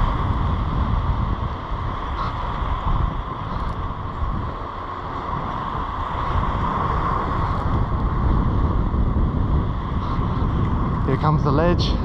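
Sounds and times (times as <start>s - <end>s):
small waves washing on beach: 0.0s - 9.0s
wind buffeting microphone: 0.0s - 12.0s.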